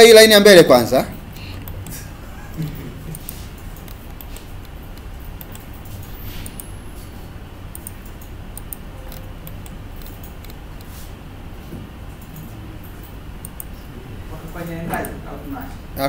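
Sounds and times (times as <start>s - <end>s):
steady low hum: 0.0s - 16.0s
computer mouse clicks: 1.3s - 2.0s, 3.0s - 6.7s, 7.7s - 11.0s, 13.4s - 13.8s, 14.9s - 15.2s.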